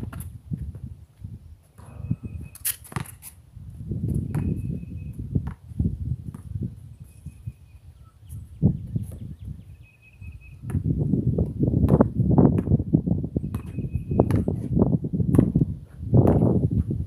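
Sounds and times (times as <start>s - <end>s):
ball bouncing on concrete: 0.0s - 0.9s, 1.7s - 3.3s, 4.1s - 5.7s, 6.3s - 6.6s, 10.6s - 12.8s, 13.4s - 16.9s
basketball striking hoop: 4.3s - 4.7s, 11.8s - 12.8s, 13.5s - 14.6s, 15.3s - 15.6s.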